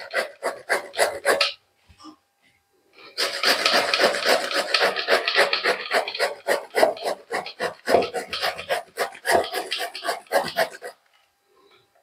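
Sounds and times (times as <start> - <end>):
gourd rasping on a grater: 0.0 - 1.6, 3.2 - 11.0.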